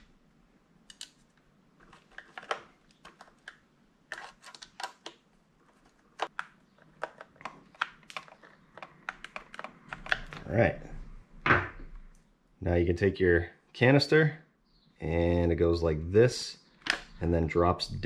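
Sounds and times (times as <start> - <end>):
plastic parts being handled: 0.9 - 10.5.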